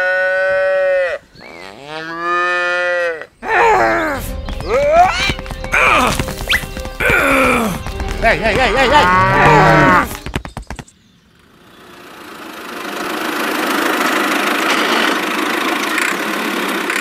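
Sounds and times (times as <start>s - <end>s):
wavering moo-like call: 8.9s - 10.2s
steady engine-like hum: 11.2s - 17.0s.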